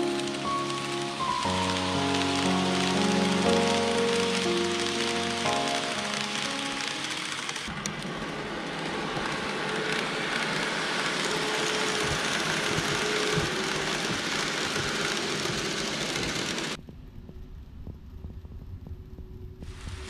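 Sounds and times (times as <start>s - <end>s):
background music: 0.0s - 7.7s
wheels clicking over rail joints: 0.0s - 8.1s, 8.8s - 16.8s
model train wheels on rail: 0.0s - 16.8s
faint motor whine: 0.0s - 20.0s.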